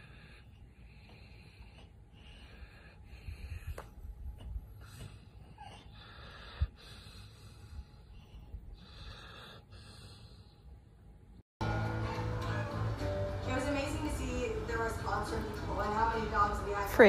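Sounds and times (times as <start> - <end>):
dog breathing noisily: 0.0 - 10.8.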